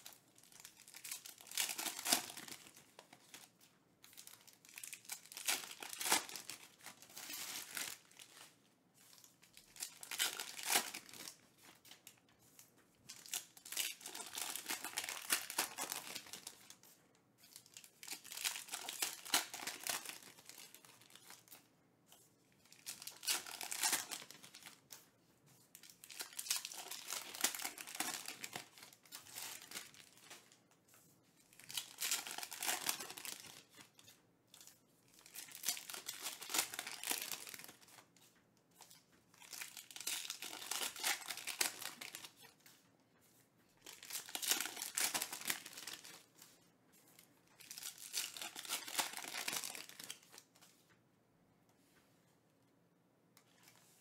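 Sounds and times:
foil wrappers tearing and crinkling: 0.0 - 3.4, 4.1 - 8.4, 9.6 - 11.4, 13.1 - 16.8, 17.9 - 21.4, 22.8 - 24.8, 25.9 - 30.4, 35.2 - 38.0, 39.4 - 42.5, 43.8 - 46.2, 47.6 - 50.3.

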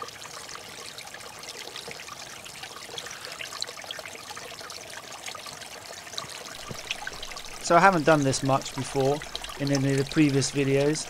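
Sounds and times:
water trickling and splashing: 0.0 - 11.0.

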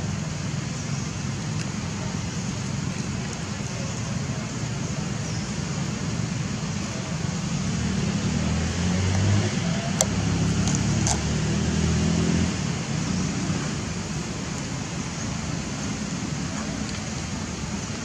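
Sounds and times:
road traffic rumble: 0.0 - 18.0
vehicle engine passing: 5.7 - 18.0.

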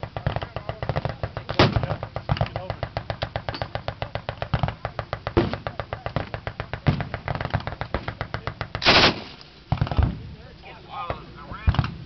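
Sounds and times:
machine gun firing: 0.2 - 10.0.

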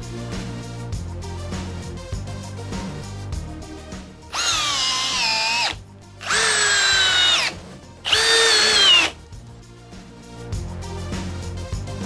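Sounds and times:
cordless drill driving screws: 4.3 - 9.2.

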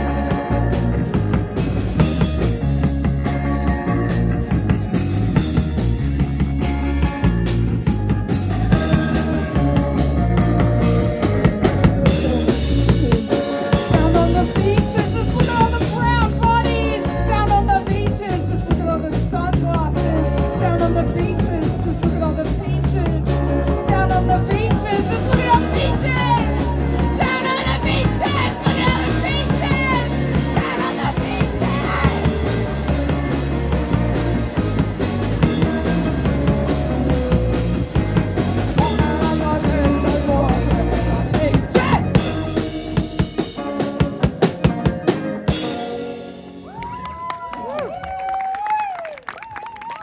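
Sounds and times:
live rock band playing: 0.0 - 50.0.

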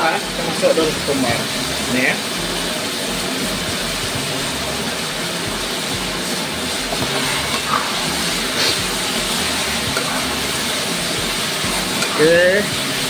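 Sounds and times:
food sizzling in a wok: 0.0 - 13.0
spatula scraping: 6.9 - 10.5.

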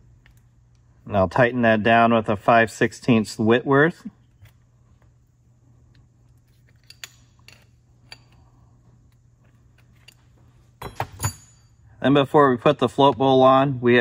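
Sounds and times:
spanner clicking on metal: 6.7 - 8.4.

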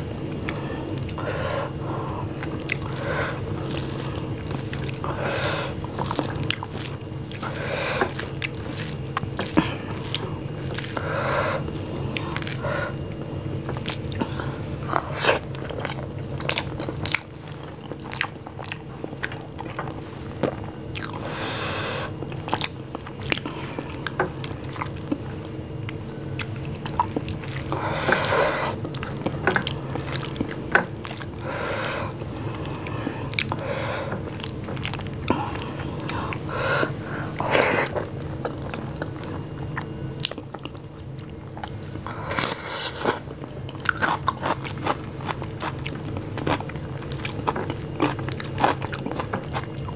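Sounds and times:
low hum: 0.0 - 49.9
fingers squishing rice: 2.1 - 18.6.

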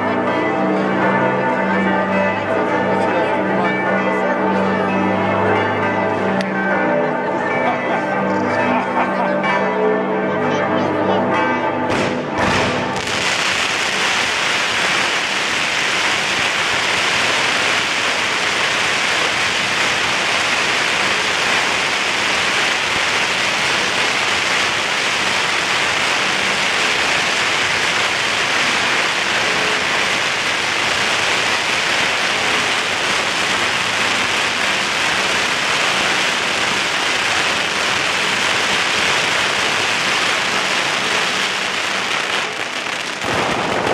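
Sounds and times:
church bells ringing: 0.0 - 42.6
sharp bangs: 11.9 - 42.6
fireworks crackling and fizzing: 11.9 - 43.9.

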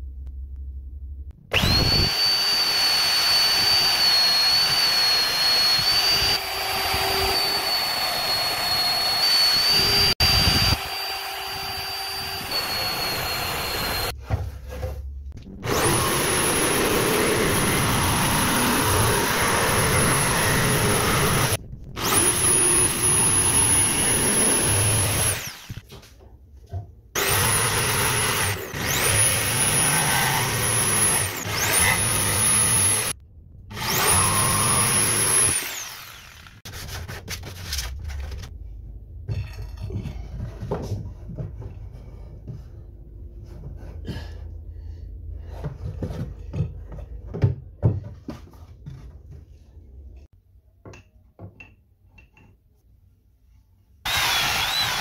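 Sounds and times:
jigsaw cutting wood: 1.5 - 14.1, 15.6 - 25.8, 27.2 - 36.7, 54.1 - 55.0
motor whine: 1.5 - 14.2, 15.4 - 25.8, 27.2 - 36.6, 54.1 - 55.0.

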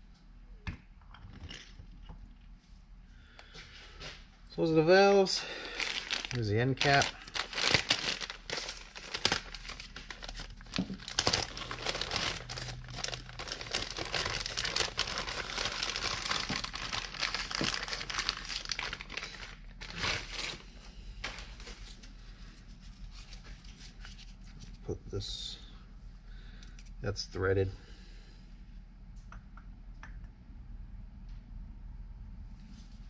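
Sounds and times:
plastic bag crinkling: 5.4 - 22.2.

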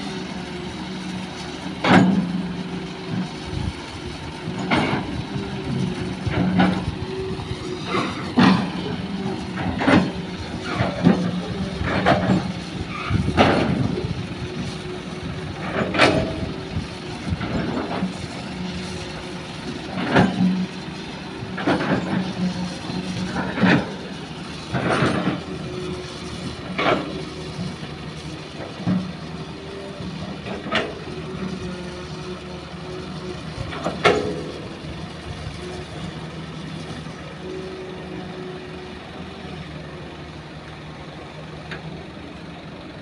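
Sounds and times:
excavator engine running: 0.0 - 43.0.

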